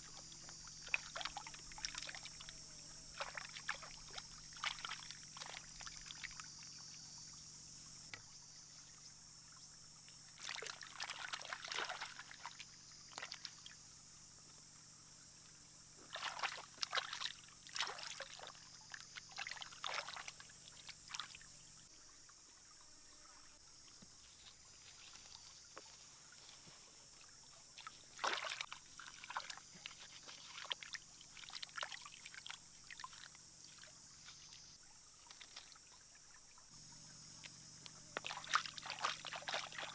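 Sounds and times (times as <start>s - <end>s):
water splashing around hands: 0.0s - 2.5s, 3.1s - 6.4s, 10.4s - 13.7s, 16.1s - 21.4s, 27.8s - 34.6s, 35.2s - 35.8s, 38.2s - 39.9s.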